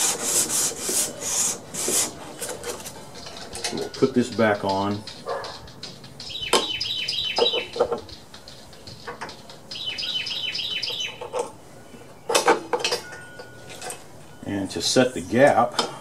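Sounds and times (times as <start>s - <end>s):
songbird chirping: 2.1s - 15.5s
metal clicks and clinks: 2.4s - 6.4s, 12.3s - 14.0s.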